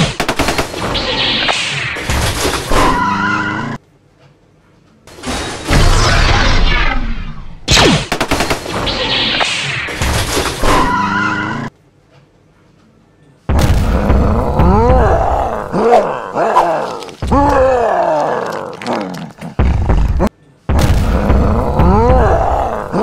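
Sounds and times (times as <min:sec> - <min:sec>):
monster growling roar: 0:14.0 - 0:20.2, 0:21.3 - 0:23.0.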